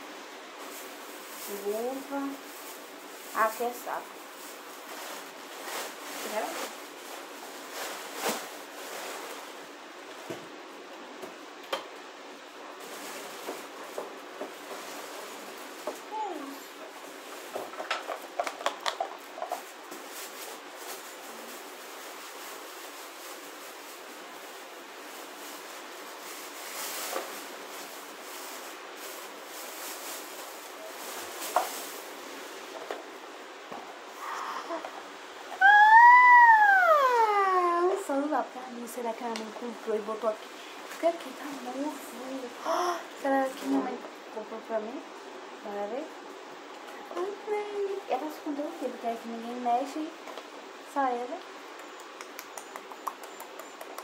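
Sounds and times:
steady hiss: 0.0s - 54.0s
objects rustling in hands: 0.6s - 10.3s, 12.7s - 36.1s.

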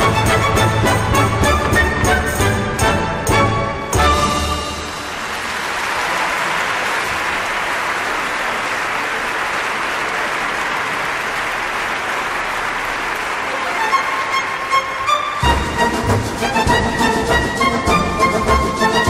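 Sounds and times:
orchestra playing: 0.0s - 5.7s, 13.3s - 19.0s
audience applauding: 4.3s - 16.2s.

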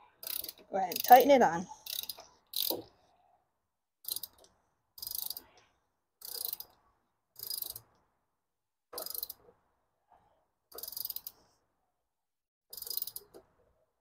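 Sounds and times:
socket ratchet clicking: 0.2s - 1.2s, 1.9s - 2.8s, 4.0s - 5.5s, 6.2s - 6.8s, 7.4s - 7.9s, 9.0s - 9.4s, 10.8s - 11.4s, 12.7s - 13.4s.

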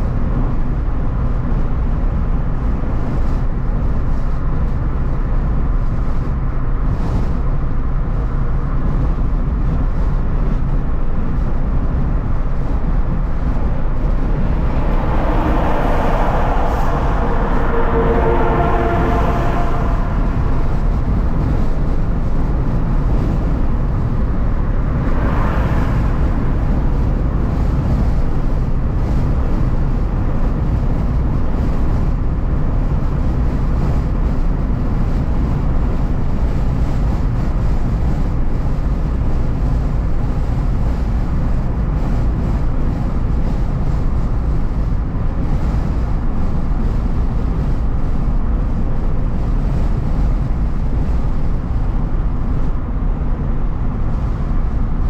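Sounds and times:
road and engine noise in car: 0.0s - 55.0s
brief rushing swell: 12.0s - 29.5s.

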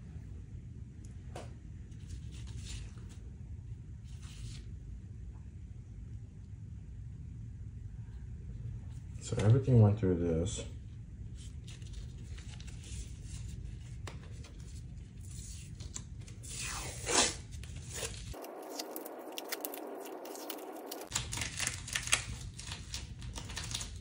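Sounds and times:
tape tearing: 15.4s - 24.0s.

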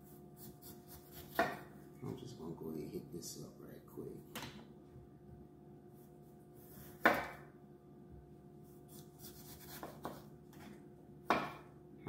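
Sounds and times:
knife slicing scrapes: 0.0s - 1.7s, 6.6s - 7.4s, 8.6s - 10.8s.

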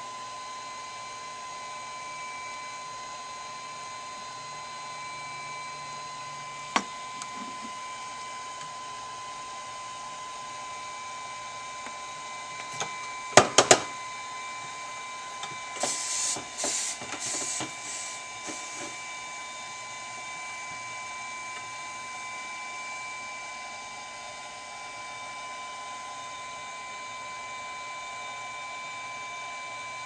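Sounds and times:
soldering tip wiped on sponge: 15.9s - 18.8s.

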